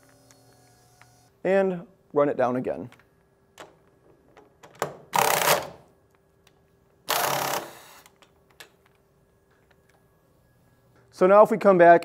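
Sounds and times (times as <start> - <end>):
pneumatic pulse tool bursts: 7.1 - 8.1.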